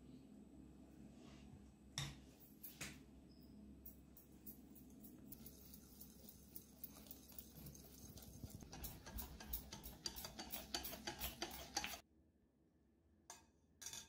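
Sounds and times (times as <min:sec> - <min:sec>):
whisk beating batter in bowl: 0:05.2 - 0:12.0.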